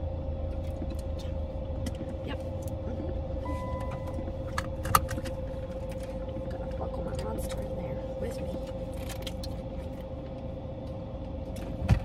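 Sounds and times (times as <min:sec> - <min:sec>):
constant hum: 0:00.0 - 0:12.0
low rumble inside car cabin: 0:00.0 - 0:12.0
short high beep: 0:03.4 - 0:04.2.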